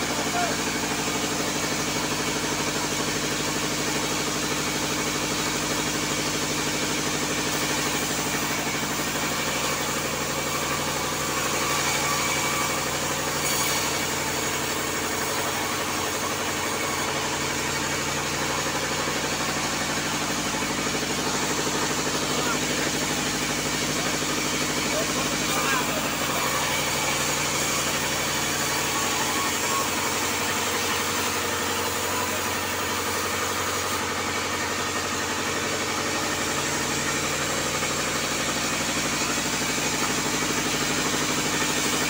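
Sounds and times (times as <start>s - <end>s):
band saw cutting timber: 0.0s - 42.0s.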